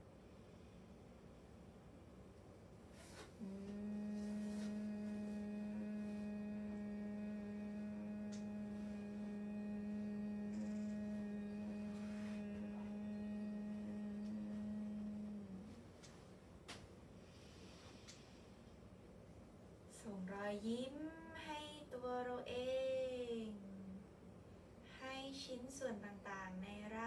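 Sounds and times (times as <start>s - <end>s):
woman humming: 3.0s - 16.2s, 20.0s - 24.2s.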